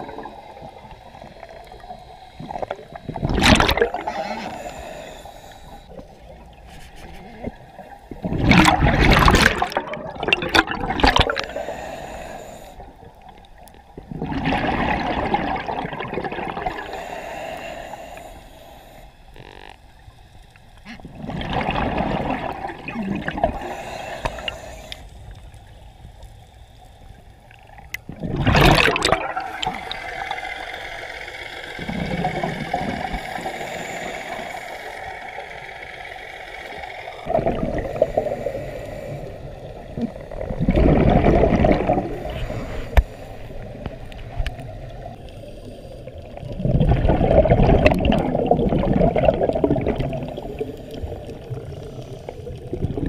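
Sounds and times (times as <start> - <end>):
faint hiss: 0.0 - 8.2, 11.1 - 14.0, 16.5 - 21.2, 22.6 - 28.0, 29.3 - 40.6, 42.0 - 46.6
underwater breath bubbles gurgling: 0.0 - 53.0.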